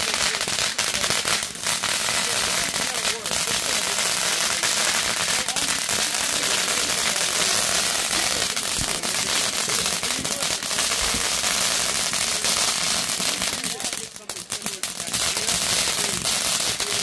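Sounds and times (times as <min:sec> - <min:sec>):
fireworks hissing and crackling: 0:00.0 - 0:17.0.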